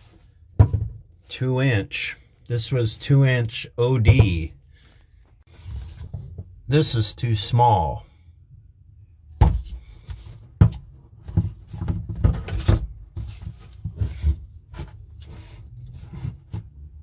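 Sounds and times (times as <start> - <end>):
rubber couplings clunking and scraping: 0.0 - 3.0, 3.7 - 6.7, 9.4 - 17.0.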